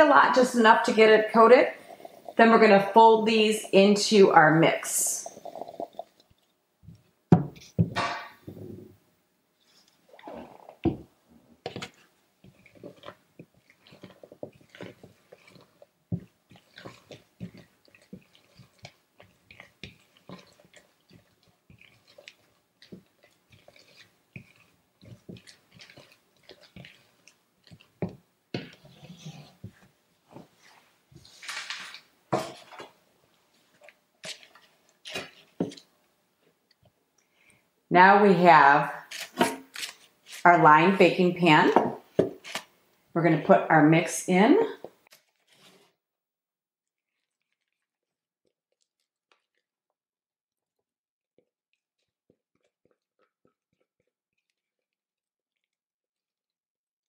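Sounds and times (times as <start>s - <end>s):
spatula folding thick batter: 5.4s - 37.7s, 39.0s - 40.5s, 42.0s - 43.1s, 44.8s - 46.0s, 46.8s - 50.0s, 50.6s - 55.8s.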